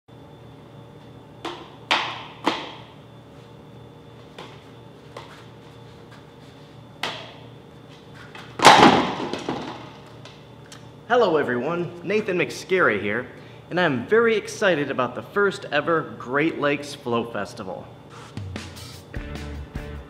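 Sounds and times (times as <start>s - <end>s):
juggling clubs smacking into hands: 1.4s - 2.9s, 7.0s - 7.4s.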